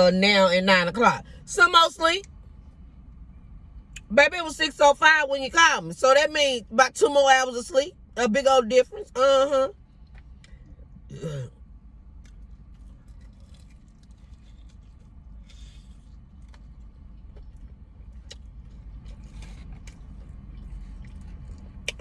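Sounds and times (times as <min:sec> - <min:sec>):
low hum in car cabin: 0:00.0 - 0:22.0
chewing: 0:12.2 - 0:22.0
crunchy bite of fried chicken: 0:12.2 - 0:22.0.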